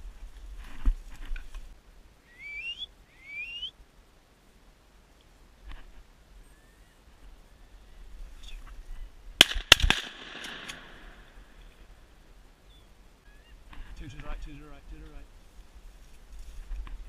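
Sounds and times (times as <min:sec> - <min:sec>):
shotgun shots with echo: 0:09.4 - 0:11.3.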